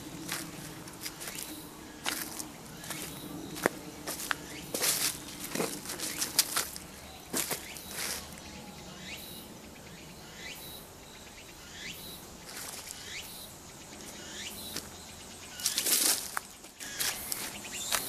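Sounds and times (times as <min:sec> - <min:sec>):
footsteps on dry leaves: 0:00.0 - 0:08.5, 0:12.4 - 0:13.0, 0:14.1 - 0:18.0.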